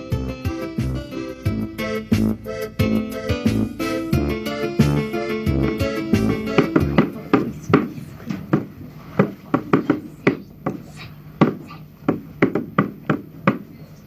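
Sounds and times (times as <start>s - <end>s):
toy side drum hits: 4.8s - 7.9s.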